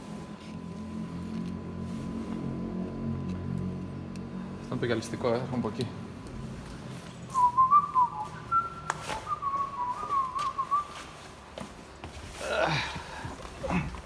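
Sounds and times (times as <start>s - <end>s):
person whistling a tune: 7.3s - 11.1s.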